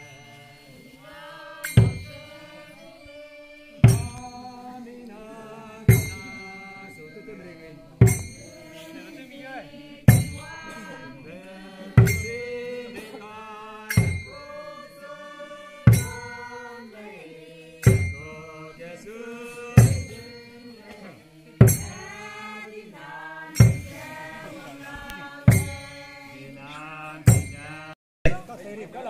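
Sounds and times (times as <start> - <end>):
group chanting in unison: 0.0 - 7.0, 7.9 - 28.0
loud drum beats: 3.8 - 4.3, 8.0 - 8.6, 10.1 - 10.6, 12.0 - 12.6, 15.9 - 16.4, 21.6 - 22.2, 25.4 - 26.1.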